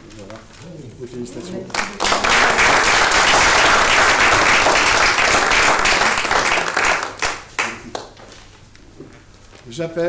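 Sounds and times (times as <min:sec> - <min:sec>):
crowd applauding: 0:01.7 - 0:08.2.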